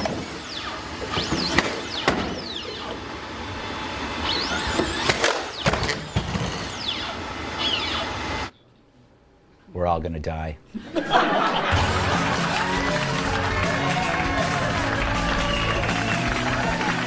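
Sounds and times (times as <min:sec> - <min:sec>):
hydraulic actuators whining: 0:00.0 - 0:08.6.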